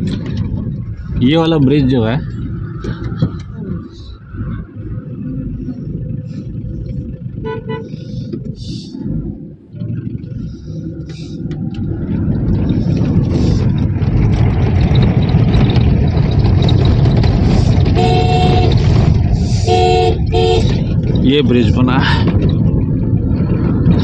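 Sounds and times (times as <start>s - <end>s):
car driving on rough road: 0.0s - 24.0s
vehicle horn: 7.4s - 8.0s, 17.9s - 20.9s.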